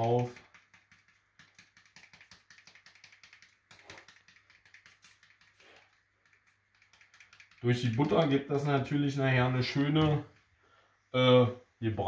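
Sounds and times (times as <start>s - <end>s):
seasoning shaker rattling: 0.0s - 8.7s.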